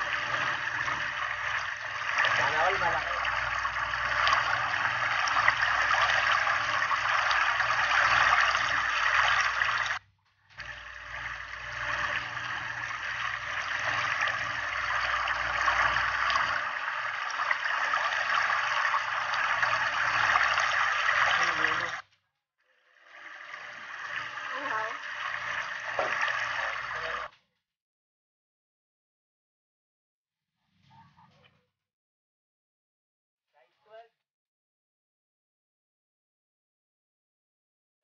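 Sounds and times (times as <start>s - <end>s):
hose water splashing: 0.0s - 10.0s, 10.6s - 22.0s, 23.0s - 27.3s.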